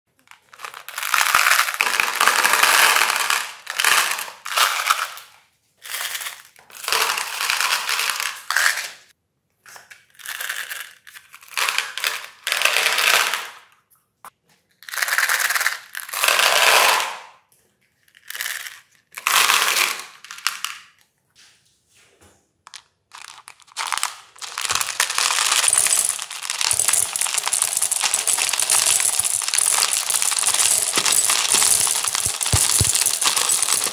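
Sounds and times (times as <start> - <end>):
candies clattering into plastic tub: 0.3 - 8.9, 22.7 - 33.9
candies rattling into metal hopper: 23.2 - 33.9.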